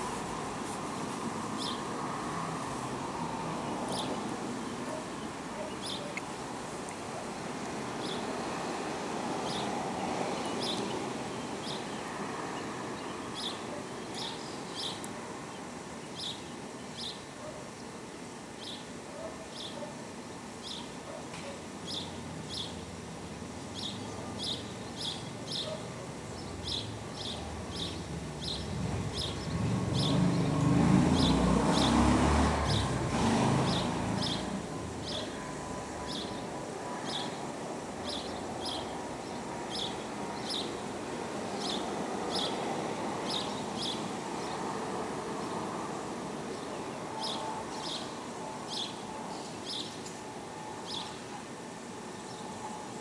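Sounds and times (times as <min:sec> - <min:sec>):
distant traffic rumble: 0:00.0 - 0:53.0
bird chirping: 0:03.9 - 0:06.3, 0:08.0 - 0:08.6, 0:10.3 - 0:17.2, 0:23.7 - 0:32.0, 0:33.6 - 0:37.4.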